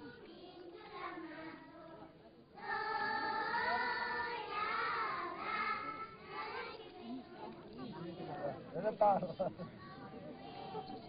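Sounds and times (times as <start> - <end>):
children singing together: 0.0 - 8.4.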